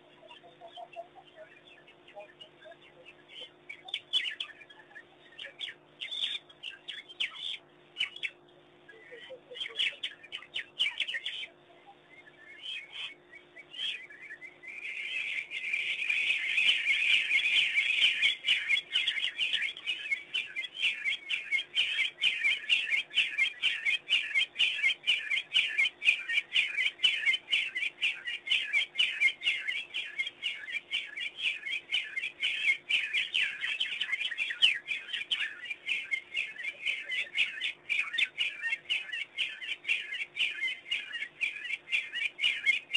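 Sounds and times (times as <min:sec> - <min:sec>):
wild dogs twittering chorus: 0:12.2 - 0:42.9.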